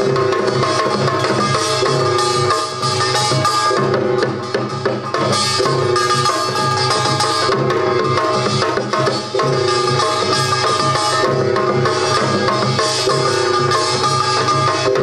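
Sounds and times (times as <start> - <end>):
drum strokes: 0.0 - 15.0
struck gongs ringing: 0.0 - 15.0.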